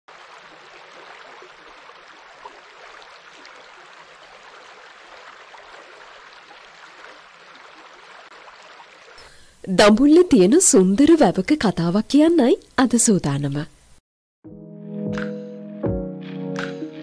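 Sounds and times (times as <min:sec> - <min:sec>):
water babbling and trickling: 0:00.1 - 0:13.1.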